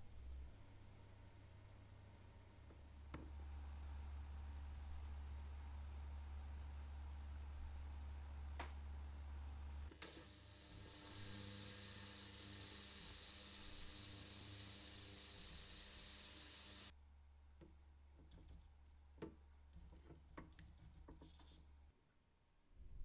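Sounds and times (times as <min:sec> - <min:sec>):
pressurised spray hissing: 0:10.0 - 0:16.9.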